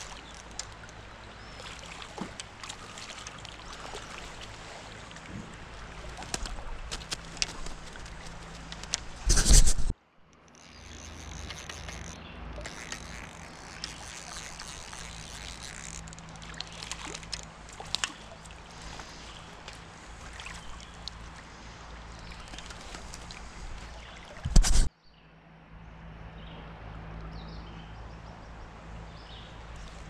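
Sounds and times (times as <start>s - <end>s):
stream water rippling: 0.0s - 30.0s.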